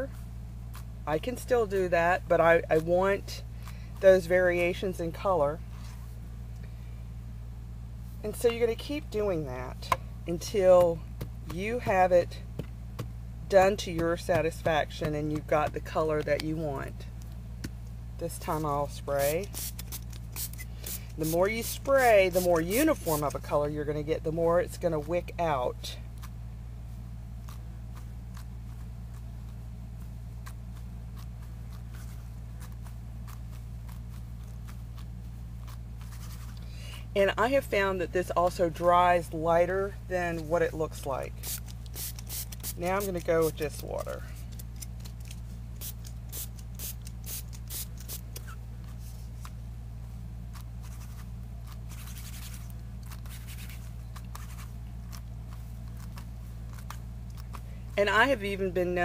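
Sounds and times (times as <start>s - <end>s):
low electrical hum: 0.0s - 59.0s
hands rustling ribbon: 50.5s - 58.0s.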